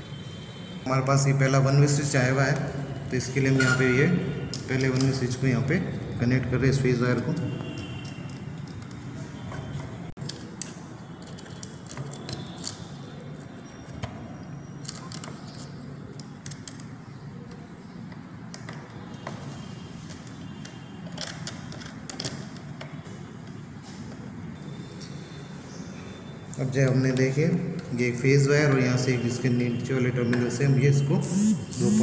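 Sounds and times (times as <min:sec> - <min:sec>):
low background noise: 0:00.0 - 0:32.0.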